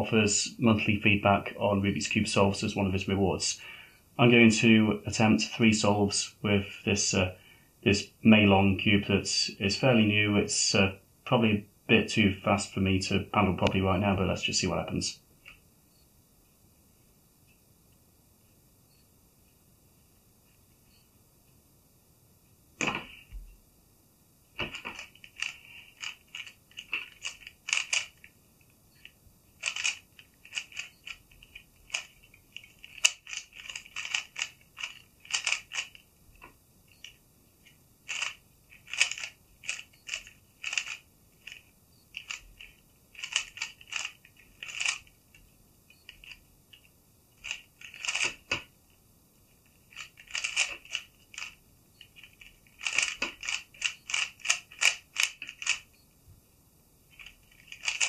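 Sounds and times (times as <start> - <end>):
puzzle cube clicking: 24.6 - 28.3, 29.0 - 37.2, 38.0 - 45.4, 46.0 - 48.7, 49.8 - 56.0, 57.2 - 58.0.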